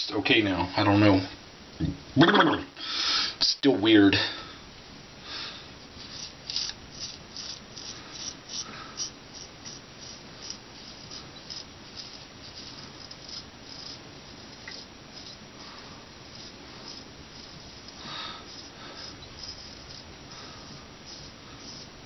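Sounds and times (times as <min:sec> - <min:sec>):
razor scraping stubble: 0:05.9 - 0:22.0.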